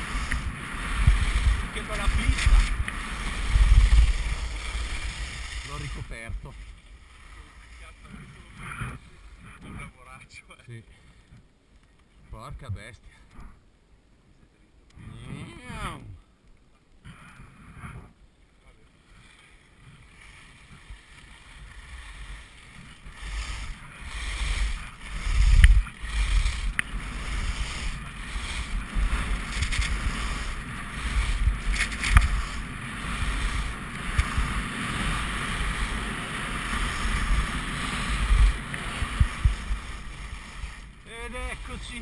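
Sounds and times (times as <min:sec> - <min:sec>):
wind rumbling on microphone: 0:00.0 - 0:10.3, 0:19.0 - 0:42.0
skis scraping over snow: 0:00.0 - 0:11.3, 0:17.6 - 0:42.0.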